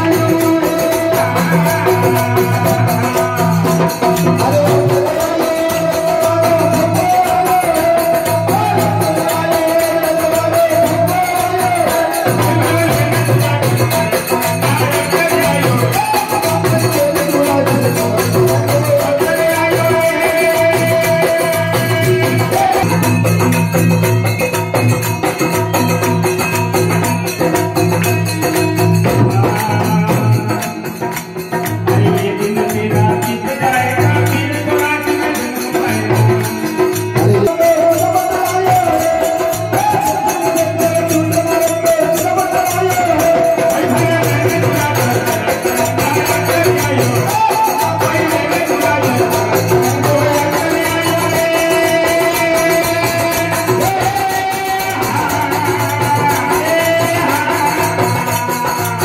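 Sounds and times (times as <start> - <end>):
harmonium melody: 0.0 - 59.0
jingling percussion: 0.0 - 59.0
pulsing drum beat: 0.0 - 59.0
hand clapping: 27.5 - 32.7.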